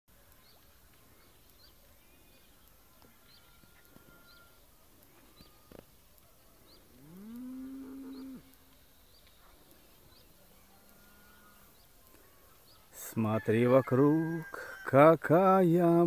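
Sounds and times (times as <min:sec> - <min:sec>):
faint bird chirps: 0:00.1 - 0:13.2
cow mooing: 0:07.0 - 0:08.6, 0:10.9 - 0:11.6.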